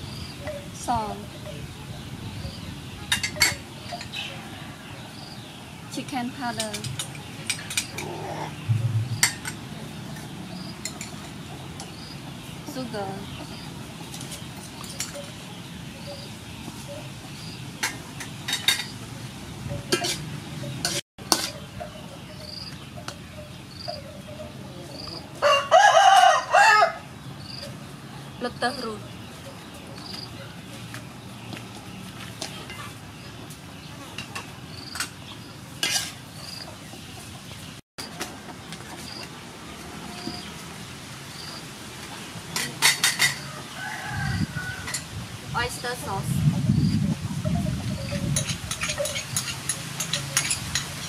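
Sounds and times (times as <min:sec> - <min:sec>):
spoon clinking against bowl: 0:19.8 - 0:20.2, 0:47.6 - 0:51.0
metal spatula scraping wok: 0:19.9 - 0:21.7, 0:35.8 - 0:36.4, 0:47.8 - 0:51.0
rooster crowing: 0:25.4 - 0:27.1, 0:43.4 - 0:45.0.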